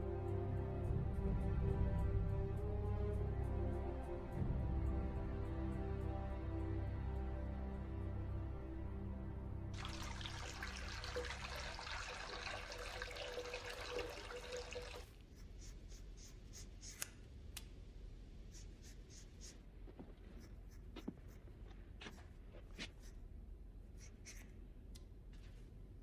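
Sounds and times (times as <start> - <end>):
running water: 9.8 - 15.1
scissors snipping wet hair: 16.2 - 17.7.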